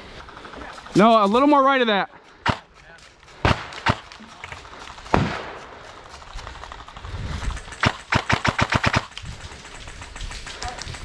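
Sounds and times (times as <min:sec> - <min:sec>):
airsoft rifle shots: 0:02.4 - 0:02.6, 0:03.4 - 0:04.1, 0:05.1 - 0:05.8, 0:07.6 - 0:10.4.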